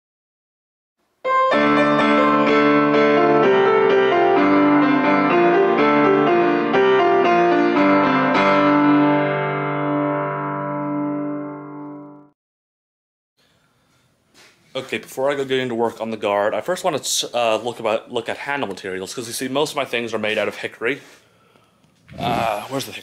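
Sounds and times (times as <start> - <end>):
keyboard chords: 1.2 - 12.4.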